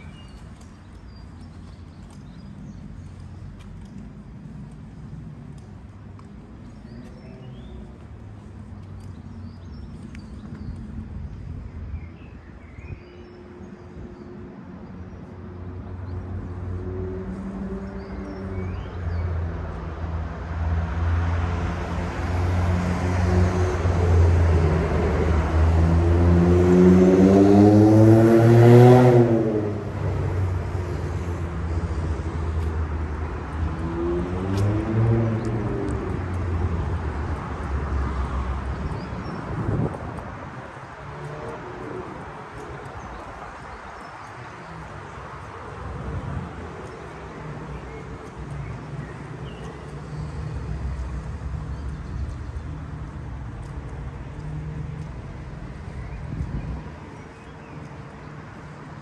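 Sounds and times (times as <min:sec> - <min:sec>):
vehicle passing by: 0:16.0 - 0:43.7.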